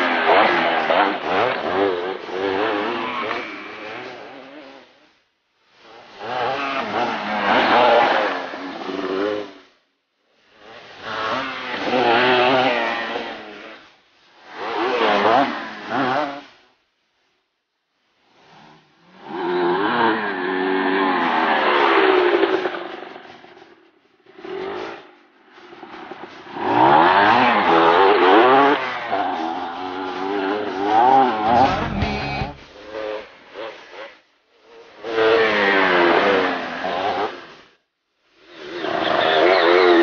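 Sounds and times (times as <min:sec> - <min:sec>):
dirt bike engine revving: 0:06.2 - 0:09.4, 0:11.0 - 0:13.8, 0:26.5 - 0:33.3.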